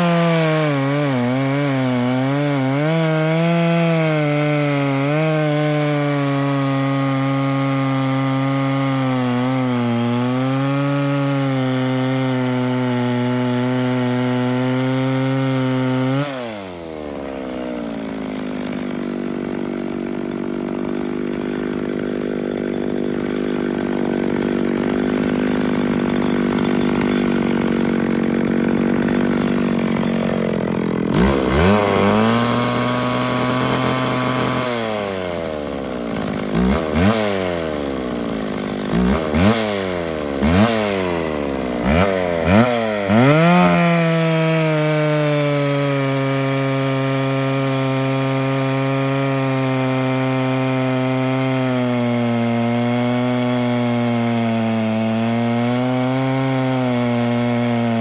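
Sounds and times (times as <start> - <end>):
chainsaw cutting log at high revs: 0.0 - 58.0.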